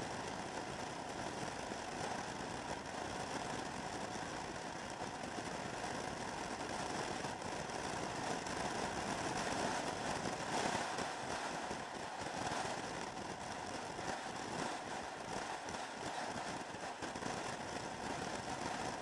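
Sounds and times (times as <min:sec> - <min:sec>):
rushing noise of riding: 0:00.0 - 0:19.0.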